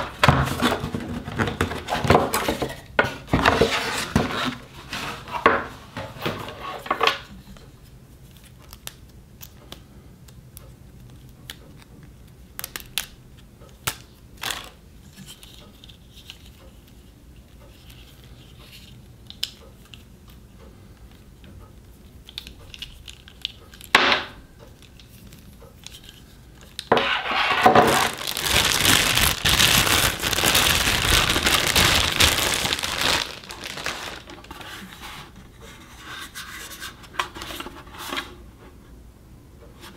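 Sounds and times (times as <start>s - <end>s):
plastic bag crinkling: 27.8s - 34.9s.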